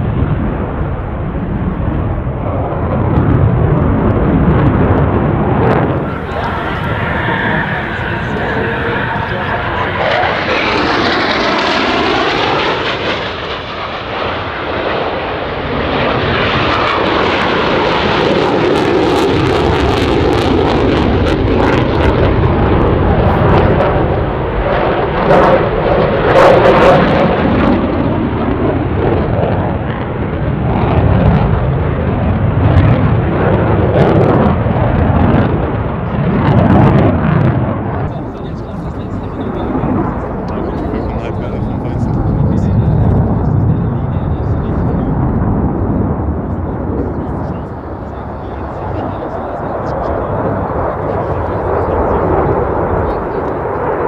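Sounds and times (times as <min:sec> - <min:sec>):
afterburner crackle: 0:00.0 - 0:26.9
fighter jets flying: 0:00.0 - 0:54.0.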